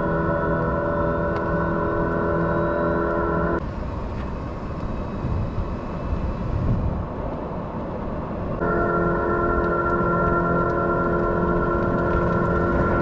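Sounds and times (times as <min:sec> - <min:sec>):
chord of whining tones: 0:00.0 - 0:03.6, 0:08.6 - 0:13.0
tyre and road noise: 0:00.0 - 0:13.0.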